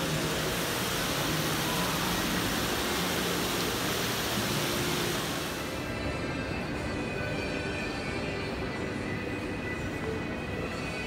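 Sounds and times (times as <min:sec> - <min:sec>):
fountain water splashing: 0:00.0 - 0:05.8
hum of arcade hall: 0:00.0 - 0:11.0.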